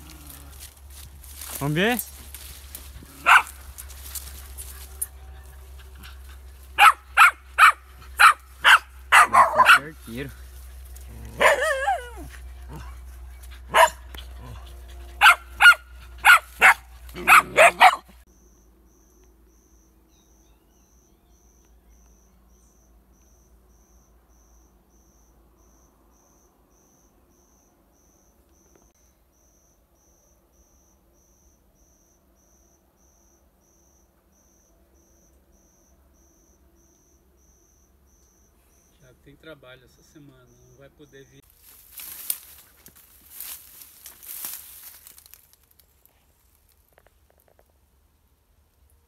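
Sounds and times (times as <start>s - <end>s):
faint insect chirping: 0.0s - 49.0s
dog barking: 3.2s - 3.6s, 6.8s - 10.0s, 11.2s - 13.0s, 13.6s - 14.6s, 15.2s - 18.2s.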